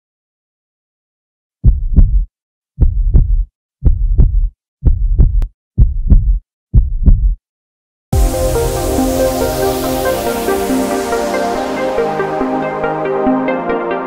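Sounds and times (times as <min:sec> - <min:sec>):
heartbeat thumps: 0:01.6 - 0:07.4
electronic music: 0:08.2 - 0:14.0.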